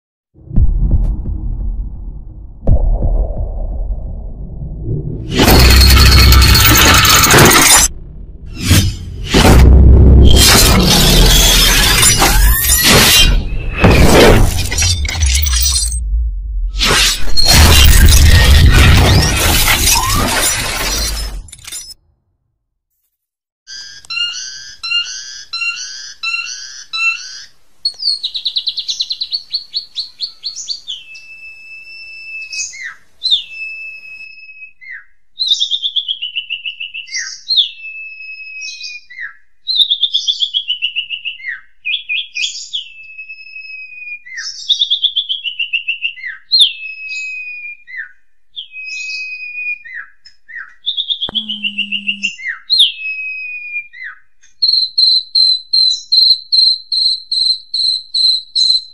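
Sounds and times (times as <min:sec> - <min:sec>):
brief low hum: 0:00.4 - 0:11.4, 0:51.3 - 0:52.3.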